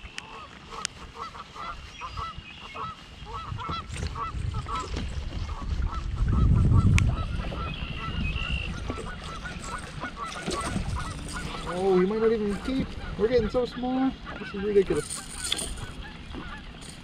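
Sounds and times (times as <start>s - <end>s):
geese honking: 0.0s - 17.0s.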